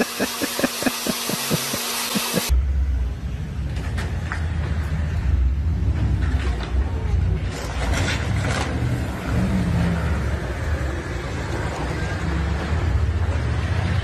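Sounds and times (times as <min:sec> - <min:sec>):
vehicle rumble: 0:02.5 - 0:14.0.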